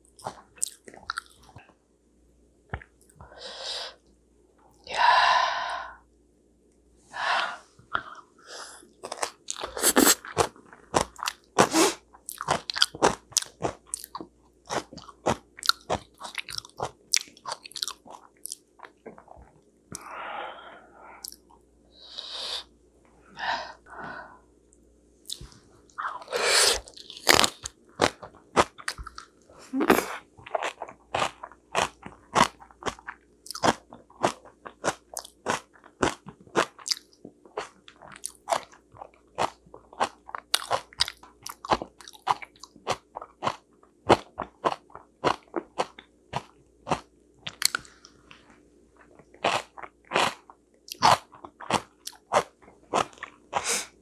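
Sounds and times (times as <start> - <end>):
cabbage crunching while chewing: 9.0 - 19.3, 26.7 - 47.9, 49.0 - 53.9.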